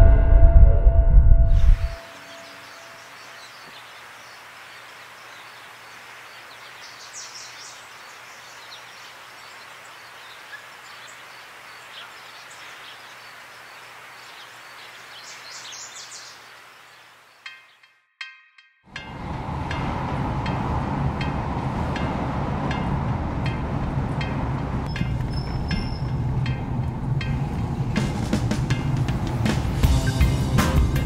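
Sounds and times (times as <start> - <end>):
outdoor air hiss: 2.0 - 17.5
small birds chirping: 2.0 - 18.0, 24.9 - 26.3.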